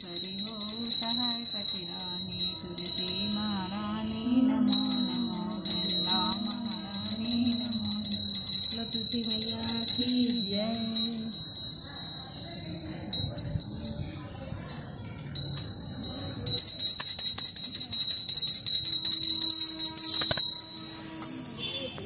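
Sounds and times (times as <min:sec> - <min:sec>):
person singing: 0:00.0 - 0:14.7
hand bell ringing rapidly: 0:00.0 - 0:21.2.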